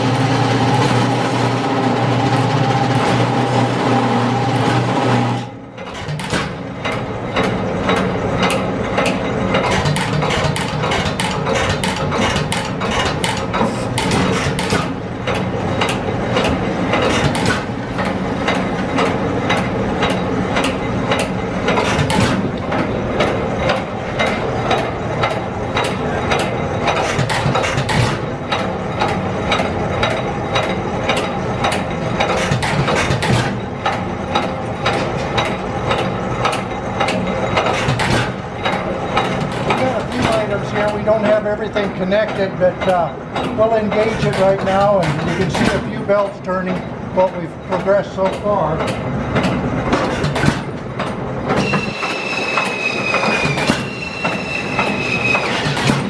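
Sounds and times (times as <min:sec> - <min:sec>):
low engine sound: 0:00.0 - 0:42.0
machinery clicking and clattering: 0:00.0 - 0:56.0.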